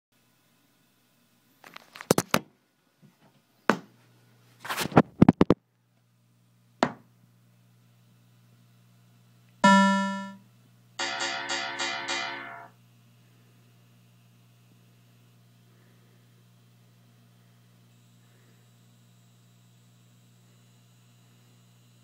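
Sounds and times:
low steady hum: 0:03.9 - 0:22.0
bong ringing: 0:09.6 - 0:10.4, 0:11.0 - 0:12.7
quick electronic tones: 0:09.6 - 0:10.4.

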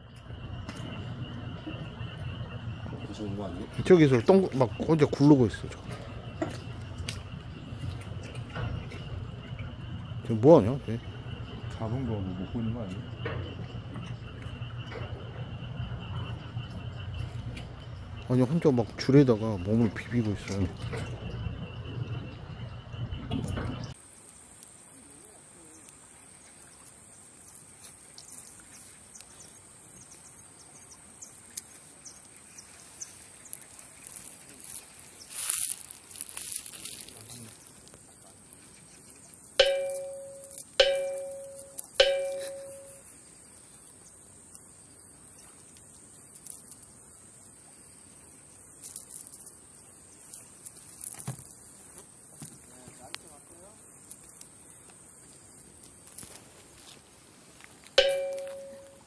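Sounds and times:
insect chirring: 0:00.0 - 0:59.0
ringing bell-like strikes: 0:39.6 - 0:43.0, 0:58.0 - 0:59.0.

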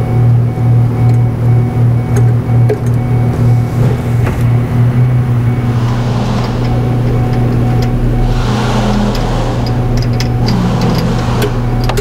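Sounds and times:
car engine idling unevenly: 0:00.0 - 0:12.0.

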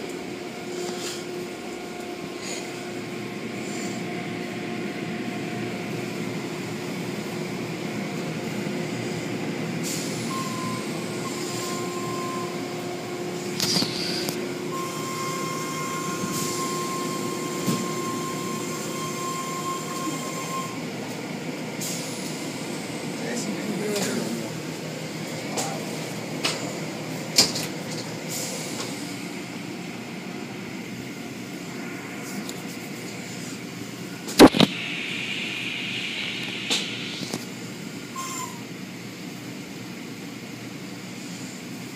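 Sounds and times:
motor whine: 0:00.0 - 0:20.9
car wash machinery rumbling: 0:00.0 - 0:41.9.

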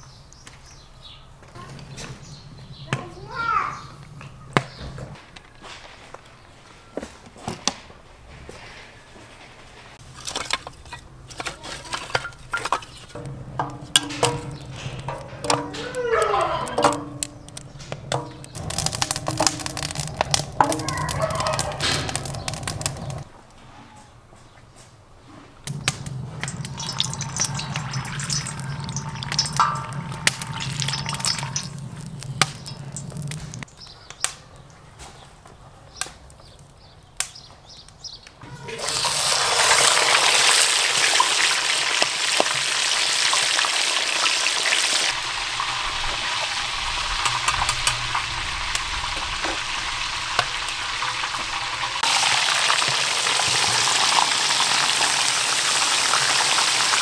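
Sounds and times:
clicks and knocks around pan: 0:10.2 - 0:23.3, 0:25.7 - 0:33.6
fish sizzling in hot oil: 0:16.7 - 0:23.3, 0:25.7 - 0:33.6, 0:38.7 - 0:57.0.

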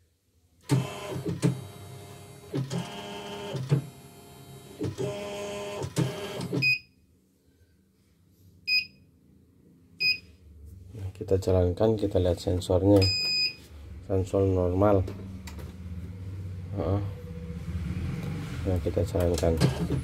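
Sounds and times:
short electronic beep: 0:13.0 - 0:13.6.

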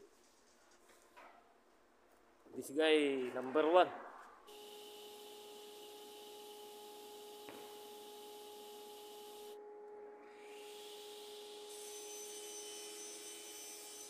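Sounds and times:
workshop machinery humming: 0:04.5 - 0:14.0.

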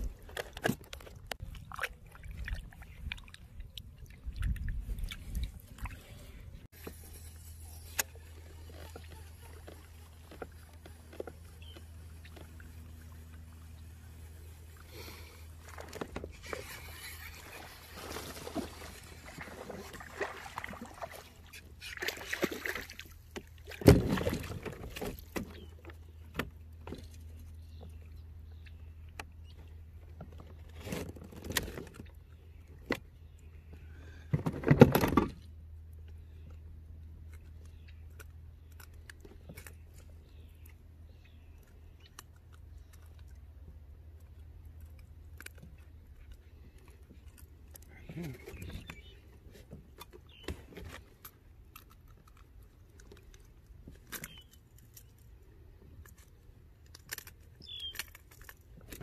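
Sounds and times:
rustles and knocks against boat: 0:00.0 - 0:01.7, 0:15.5 - 0:28.1, 0:29.2 - 0:32.2, 0:33.7 - 0:35.5, 0:47.8 - 0:51.4.

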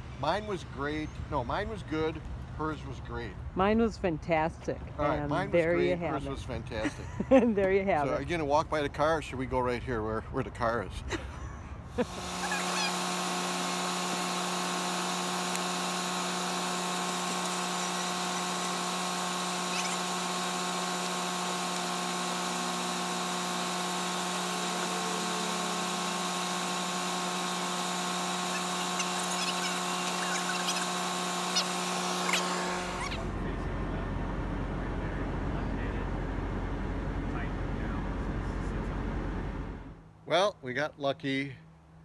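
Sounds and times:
electric motors buzzing whine: 0:12.0 - 0:39.9.

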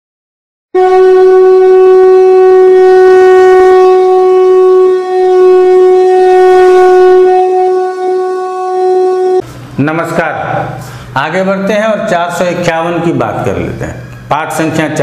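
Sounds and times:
conch shell horn note: 0:00.8 - 0:09.4.

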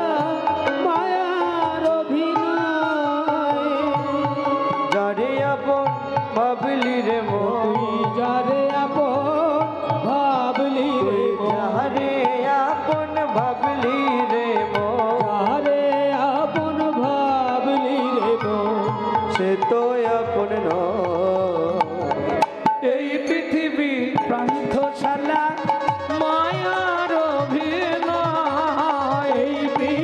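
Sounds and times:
wavering melodic instruments: 0:00.0 - 0:30.0
hand drum rhythm: 0:07.4 - 0:22.9.

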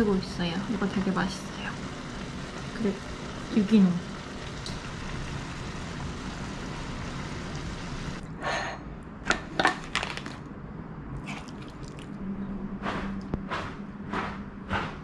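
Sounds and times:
steady hiss: 0:00.8 - 0:08.2
wet squelches of sauce: 0:11.2 - 0:12.2.

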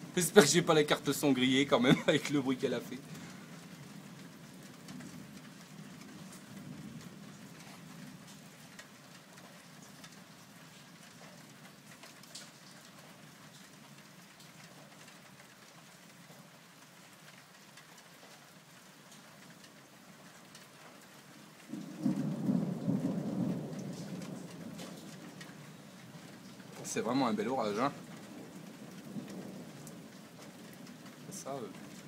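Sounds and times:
steady rain falling: 0:00.0 - 0:32.0
thunder rumbling: 0:21.7 - 0:32.0.

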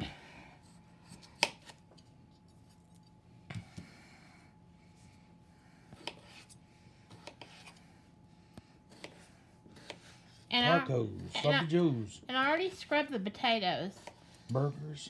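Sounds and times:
knife cutting raw potato: 0:00.7 - 0:01.9, 0:05.9 - 0:07.8, 0:08.8 - 0:10.8.

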